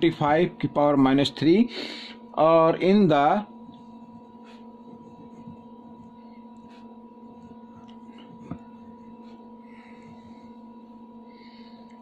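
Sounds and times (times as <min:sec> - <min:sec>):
steady tonal hum: 0:00.0 - 0:12.0
pen scratching on paper: 0:03.9 - 0:09.4.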